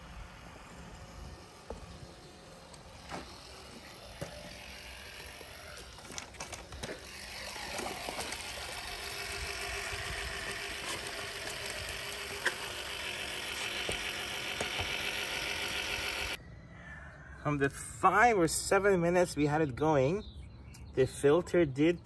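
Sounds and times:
pool vacuum whirring in water: 0.0s - 16.4s.

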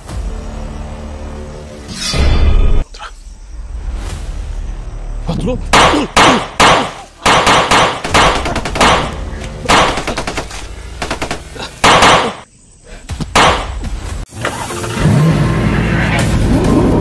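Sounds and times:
loud gunshot-like bangs: 5.7s - 10.3s, 11.1s - 12.4s, 13.4s - 13.8s.

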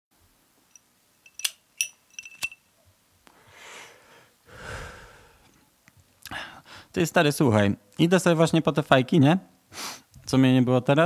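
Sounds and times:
sharp clinks: 0.7s - 2.7s.

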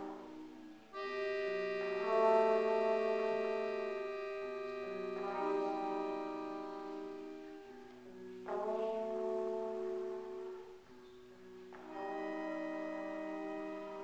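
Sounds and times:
accordion: 0.0s - 14.0s
clarinet: 0.0s - 14.0s
guitar: 0.0s - 14.0s
trombone: 1.0s - 3.7s.

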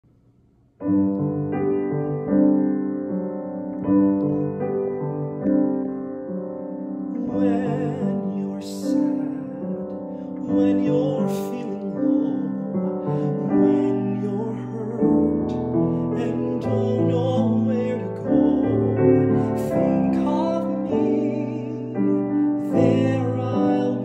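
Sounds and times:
grand piano chords: 0.0s - 24.0s
man singing: 7.1s - 24.0s.

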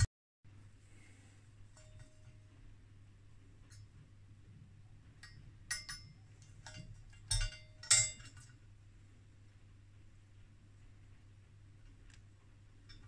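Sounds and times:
metal parts clinking and tapping: 1.7s - 2.5s, 5.1s - 8.6s.

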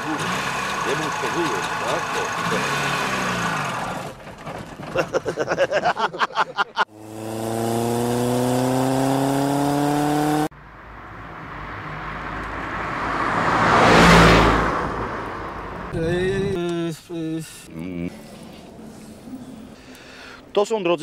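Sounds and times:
two-stroke engine revving: 0.0s - 5.4s, 6.8s - 10.5s
vehicle passing by: 6.9s - 16.6s.

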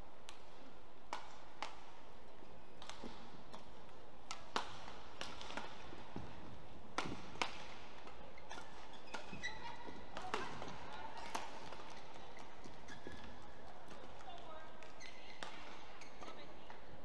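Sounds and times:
racket striking shuttlecock: 0.2s - 2.0s, 2.8s - 12.5s.

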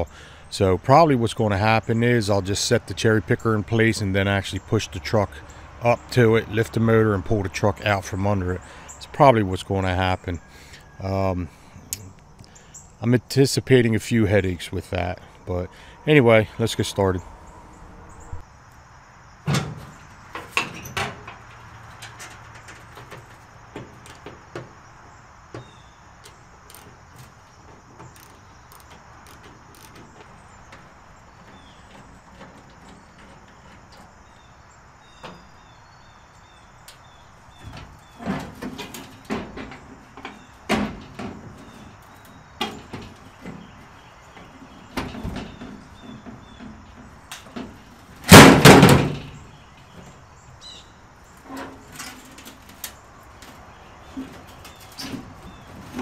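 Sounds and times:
metallic clunks and knocks: 19.4s - 24.8s, 37.6s - 50.2s.

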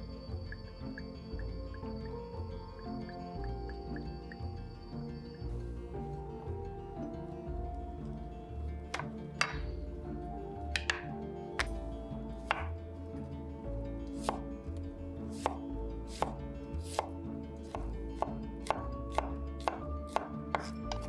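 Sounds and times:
soft background music: 0.0s - 21.0s
knife chopping on wooden board: 8.9s - 9.7s, 10.8s - 11.8s, 12.4s - 12.8s, 14.2s - 14.4s, 15.3s - 21.0s.

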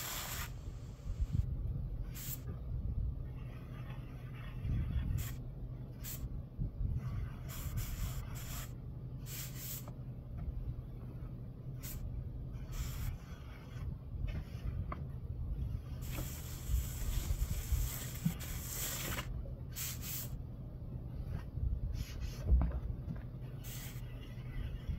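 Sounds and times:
steady low rumble: 0.0s - 24.9s
trowel scraping stucco: 3.3s - 5.4s, 16.0s - 20.0s.

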